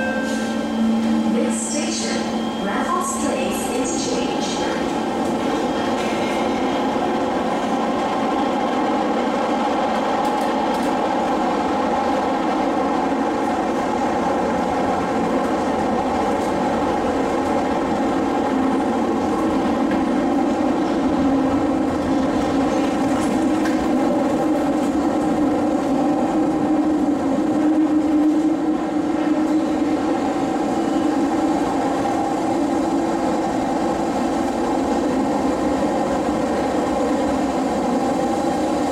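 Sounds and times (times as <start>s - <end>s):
steady humming tones: 0.0s - 8.6s
train wheels rumbling on rails: 0.0s - 38.9s.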